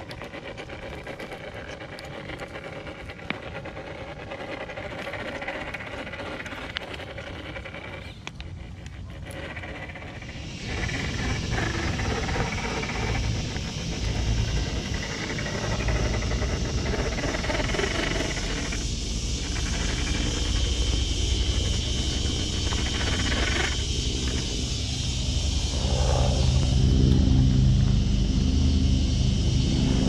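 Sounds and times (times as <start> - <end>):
tires grinding on stone: 0.0 - 29.1
small electric motor running: 0.0 - 30.0
steady hiss: 9.4 - 30.0.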